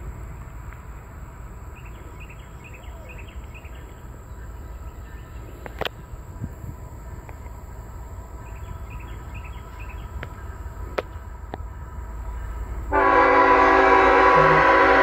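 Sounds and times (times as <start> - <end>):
faint bird chirps: 1.8 - 6.2
locomotive air horn chord: 12.9 - 15.0.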